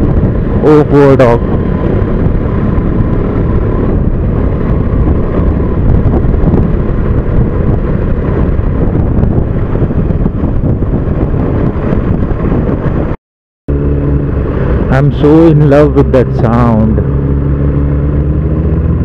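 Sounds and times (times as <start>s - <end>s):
motorcycle engine running: 0.0s - 19.0s
wind buffeting microphone: 0.0s - 19.0s.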